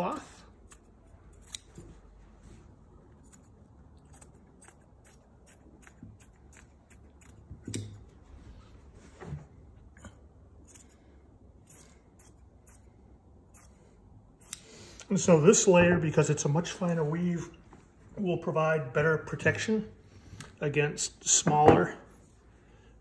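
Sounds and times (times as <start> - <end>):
scissors snipping fabric: 0.6 - 2.0, 3.2 - 8.1.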